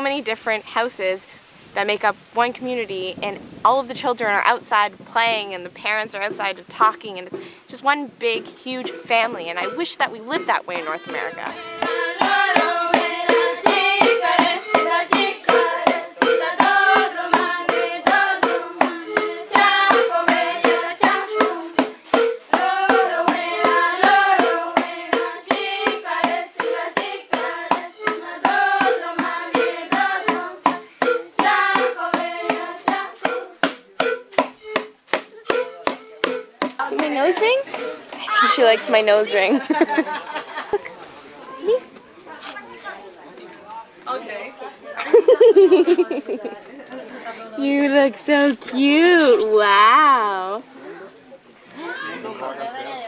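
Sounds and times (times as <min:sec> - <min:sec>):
person singing: 0:08.8 - 0:36.4.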